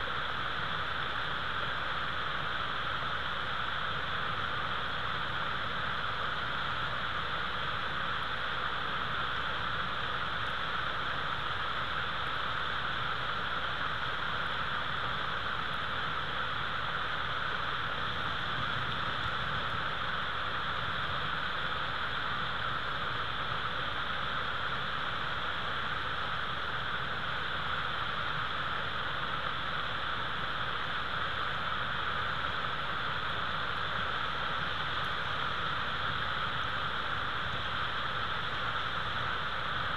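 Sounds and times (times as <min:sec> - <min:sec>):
steady hiss: 0:00.0 - 0:39.9.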